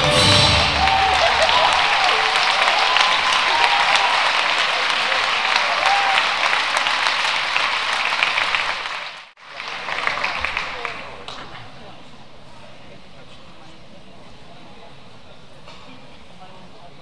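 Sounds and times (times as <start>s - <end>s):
dance music: 0.0s - 1.8s
audience applauding: 0.0s - 11.3s.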